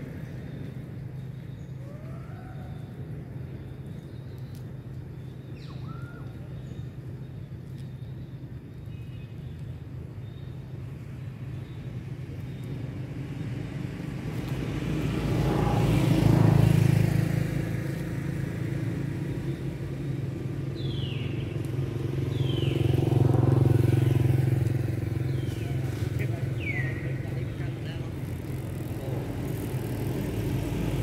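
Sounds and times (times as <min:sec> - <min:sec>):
vehicle engine running: 0:13.6 - 0:31.0.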